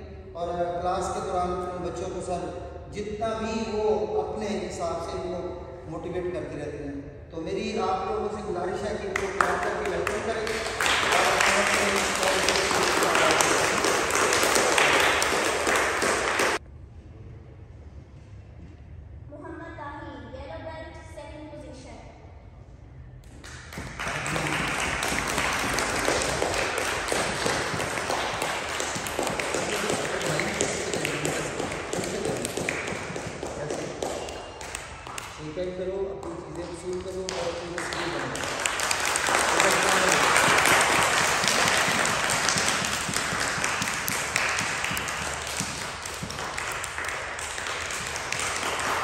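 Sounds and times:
children clapping: 9.1s - 16.6s, 23.3s - 35.5s, 36.2s - 49.0s.

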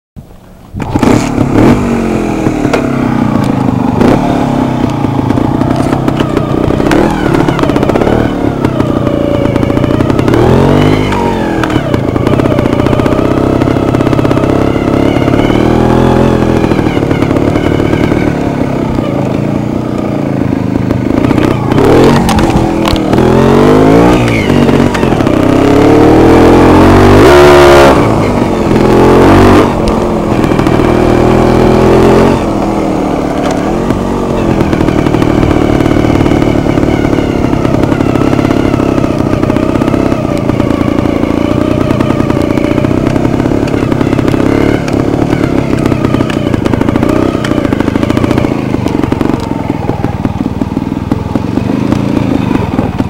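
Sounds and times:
motorcycle engine revving: 0.2s - 53.0s.

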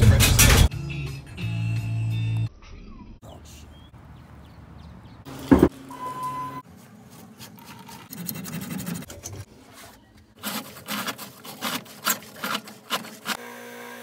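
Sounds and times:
drain snake scraping pipe: 7.3s - 13.4s.

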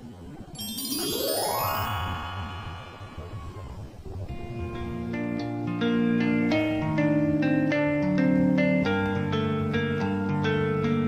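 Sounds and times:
plucked string melody: 0.6s - 11.0s.

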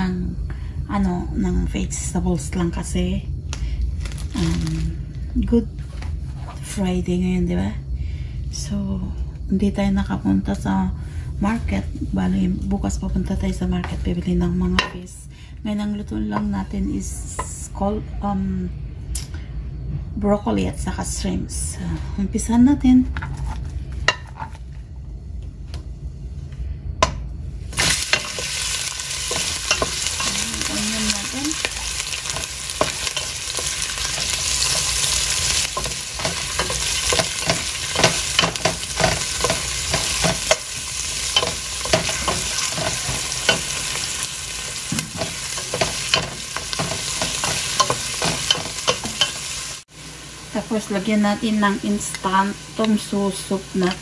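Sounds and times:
onion sizzling in hot oil: 3.9s - 5.0s, 27.6s - 54.0s
wooden spoon scraping a pan: 23.1s - 24.6s.

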